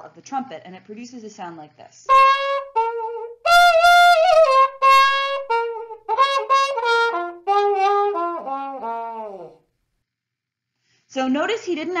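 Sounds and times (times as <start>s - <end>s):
muted trumpet wah-wah notes: 2.1s - 9.6s.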